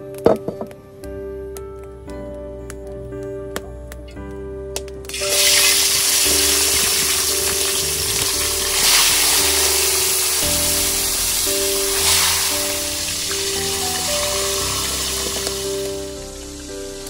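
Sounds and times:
background music: 0.0 - 17.0
fish sizzling in hot oil: 5.1 - 17.0.

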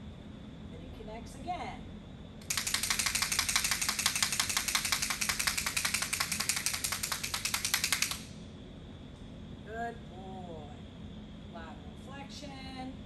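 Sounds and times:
rapid even rattling: 2.4 - 8.3.

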